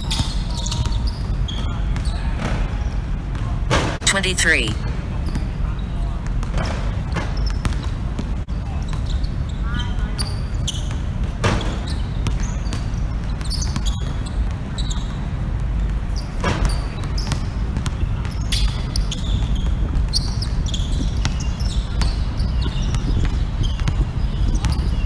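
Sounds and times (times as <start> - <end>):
sneakers squeaking on court: 6.6 - 15.2, 16.1 - 25.0
basketball bouncing: 22.8 - 24.9.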